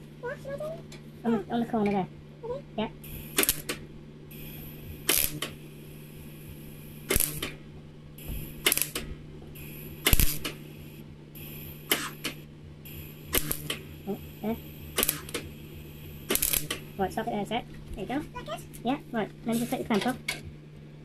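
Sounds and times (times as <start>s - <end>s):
low hum: 0.0s - 21.0s
welding arc crackling: 3.0s - 18.8s.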